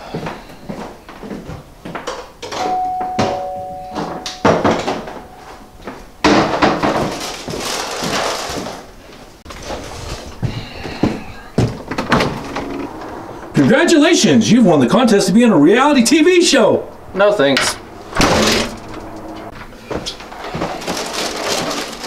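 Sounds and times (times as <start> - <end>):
two-tone doorbell chime: 2.6 - 6.2
footsteps: 6.9 - 13.9, 17.6 - 21.7
loud rustling: 9.5 - 14.1, 17.7 - 22.0.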